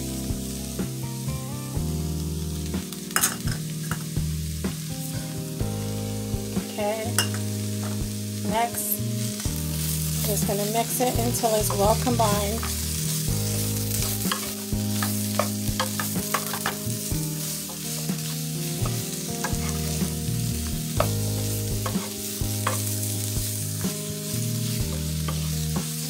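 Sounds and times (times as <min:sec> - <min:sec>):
cabbage sizzling in a pan: 0:00.0 - 0:26.0
wooden spatula scraping: 0:10.2 - 0:23.0.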